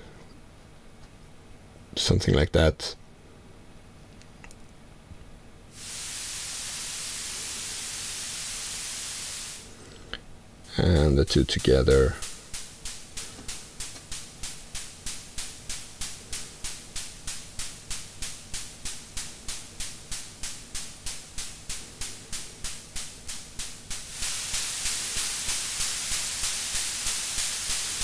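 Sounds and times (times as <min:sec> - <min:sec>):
hiss ticks: 0:05.8 - 0:28.0.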